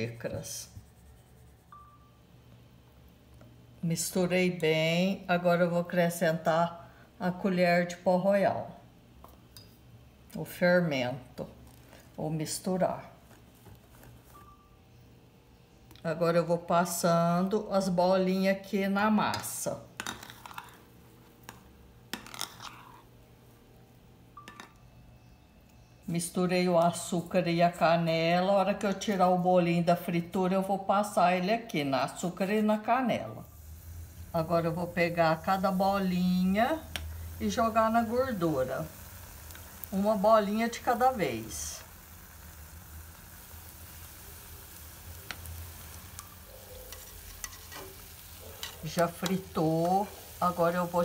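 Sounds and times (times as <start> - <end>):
soft scraping in batter: 0.4 - 1.8, 20.0 - 23.2, 46.8 - 48.0
deep-frying sizzle: 16.8 - 27.9, 32.2 - 51.0.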